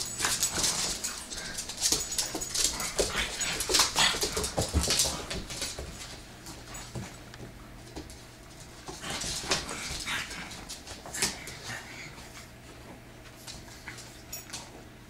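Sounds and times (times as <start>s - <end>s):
claws clicking on hardwood floor: 0.0s - 11.6s.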